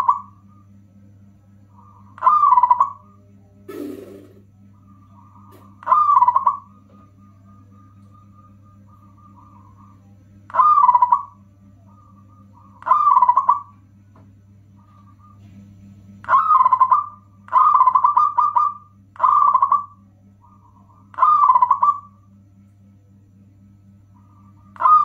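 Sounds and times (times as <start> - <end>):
dove cooing: 0.0 - 0.4, 1.8 - 3.1, 3.7 - 13.7, 16.2 - 22.2, 24.2 - 25.0
steady low hum: 0.0 - 25.0.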